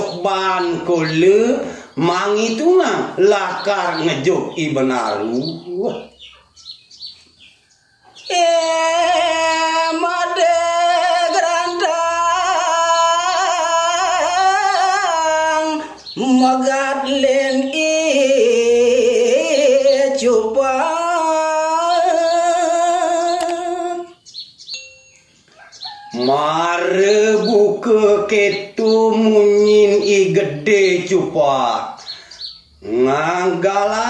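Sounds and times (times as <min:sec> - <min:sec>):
man singing solo: 0:08.3 - 0:24.1, 0:26.1 - 0:32.0.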